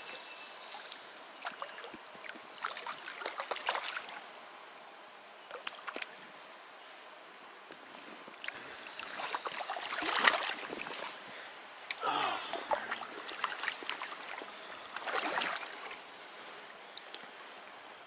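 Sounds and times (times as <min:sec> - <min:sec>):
stream running: 0:00.0 - 0:04.8, 0:08.3 - 0:18.0
water splashing: 0:02.6 - 0:04.2, 0:08.4 - 0:17.4.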